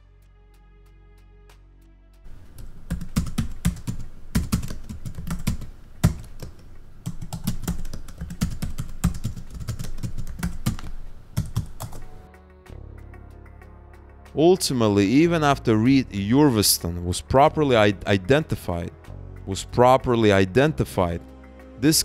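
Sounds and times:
keyboard typing clicks: 2.3s - 12.2s.

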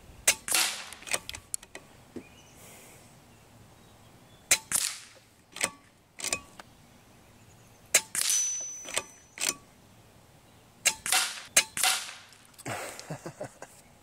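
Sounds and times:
air rifle shots: 0.2s - 1.3s, 4.5s - 6.4s, 7.9s - 9.6s, 10.8s - 12.4s.

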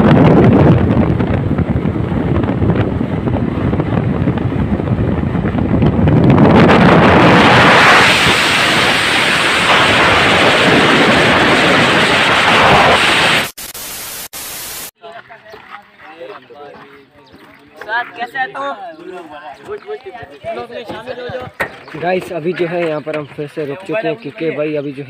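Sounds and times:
wind rushing over microphone: 0.0s - 13.6s.

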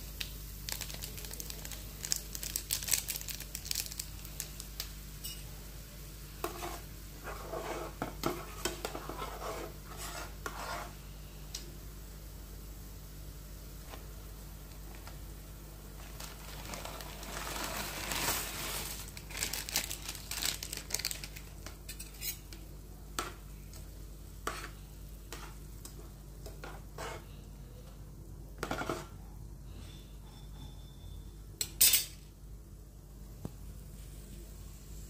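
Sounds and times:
steady low hum: 4.0s - 35.0s
utensils clinking against a pan: 21.9s - 22.6s, 31.6s - 32.2s.

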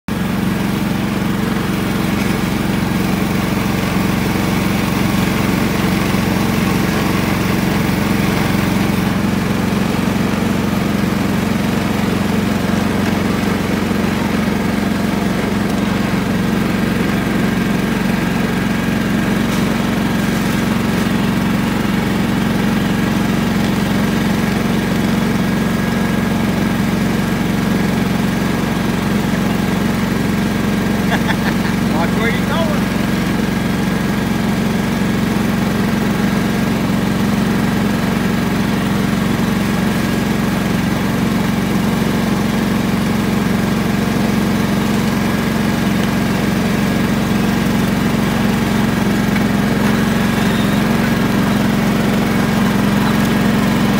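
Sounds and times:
lawn mower engine droning: 0.0s - 53.9s.

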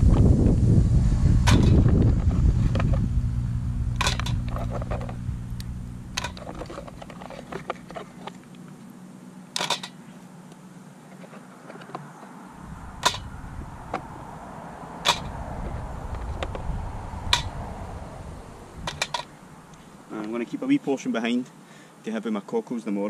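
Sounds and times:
low rumble: 0.0s - 7.9s, 12.6s - 19.8s
mussel shells clacking in metal pot: 6.1s - 8.2s, 13.0s - 13.3s, 18.9s - 19.3s.

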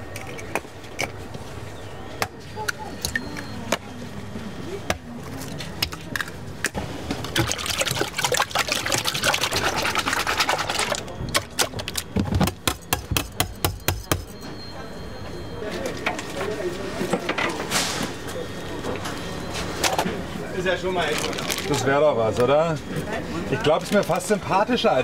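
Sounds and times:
whisk beating eggs in a plastic tub: 7.3s - 11.0s.

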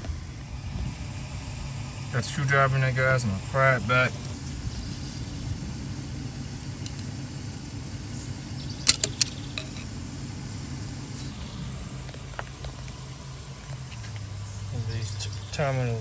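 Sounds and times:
steady low hum: 0.0s - 16.0s
sharp plastic clicks: 8.8s - 9.8s.

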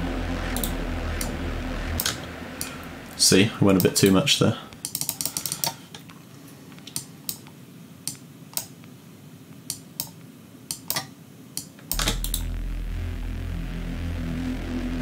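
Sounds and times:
deep low synth pad: 0.0s - 3.8s, 11.9s - 15.0s
computer mouse clicking: 4.8s - 5.8s, 8.1s - 8.7s, 9.6s - 12.4s.

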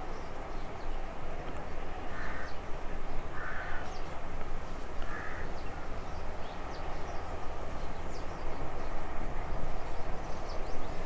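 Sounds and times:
steady background noise: 0.0s - 11.0s
crow cawing: 2.1s - 2.6s, 3.3s - 3.9s, 5.0s - 5.5s.

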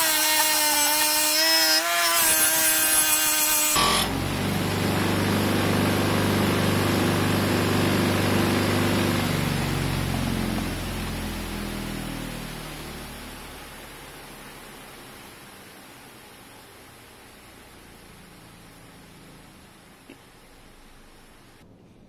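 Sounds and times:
bench grinder hum: 0.0s - 10.6s.

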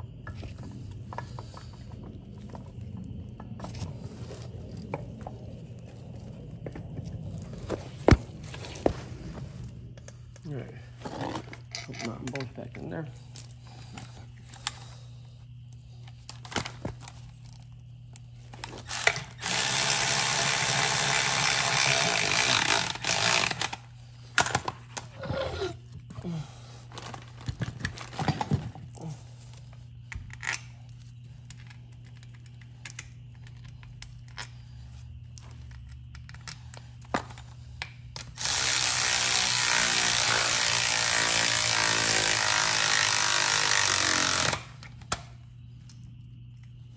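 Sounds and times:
metal parts clicking and knocking: 11.5s - 12.6s
cordless power ratchet running: 18.9s - 23.8s, 38.4s - 44.7s.

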